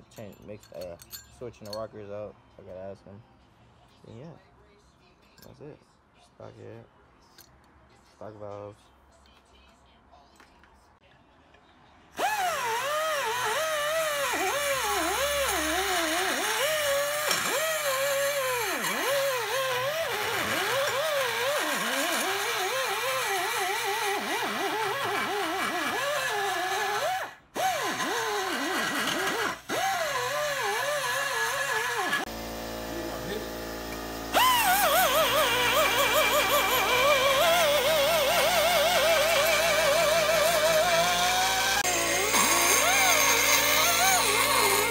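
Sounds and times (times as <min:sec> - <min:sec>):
die grinder whining on metal: 0:12.2 - 0:44.9.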